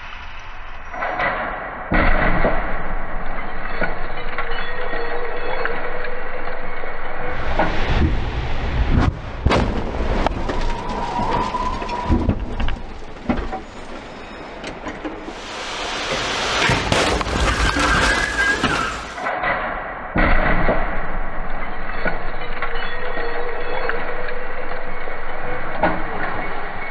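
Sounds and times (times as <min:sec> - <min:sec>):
low rumble: 0:00.0 - 0:26.9
loud rushing noise: 0:07.2 - 0:13.9, 0:15.2 - 0:19.4
car crashes and crunches: 0:07.3 - 0:19.3
sharp cracks: 0:15.4 - 0:19.4.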